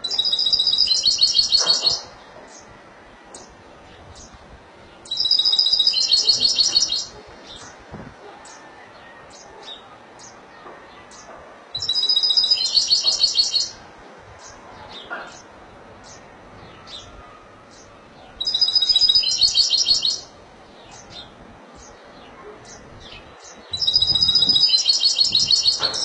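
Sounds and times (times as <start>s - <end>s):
goldfinch trilled song: 5.0s - 7.7s, 11.1s - 13.8s, 18.4s - 22.0s, 22.7s - 26.0s
bird single chirps: 23.7s - 26.0s.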